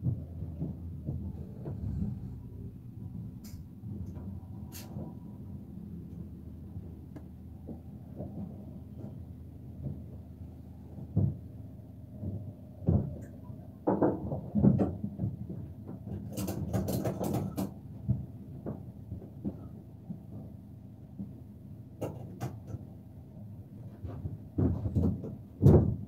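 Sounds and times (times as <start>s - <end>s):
knocks and rattles in van cab: 0.0s - 5.6s, 6.8s - 20.6s, 22.0s - 23.0s, 23.8s - 26.0s
steady low hum: 0.0s - 16.1s.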